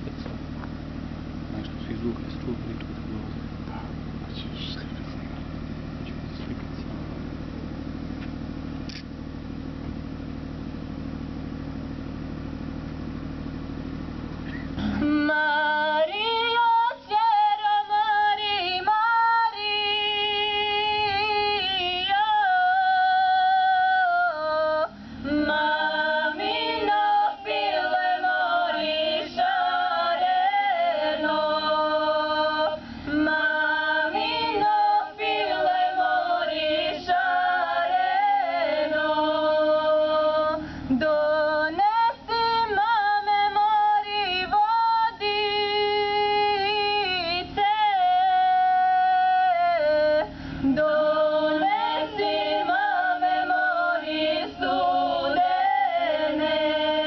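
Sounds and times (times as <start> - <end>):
women singing a cappella: 14.8 - 57.0.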